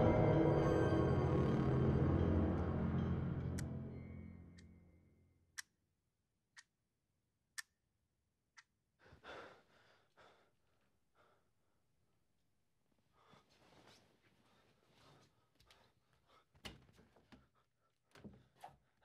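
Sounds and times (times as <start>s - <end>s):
eerie film score: 0.0s - 5.2s.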